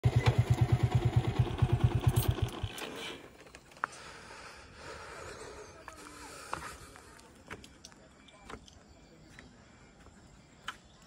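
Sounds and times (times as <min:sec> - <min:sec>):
small engine idling: 0:00.0 - 0:05.2
faint outdoor background: 0:00.0 - 0:11.0.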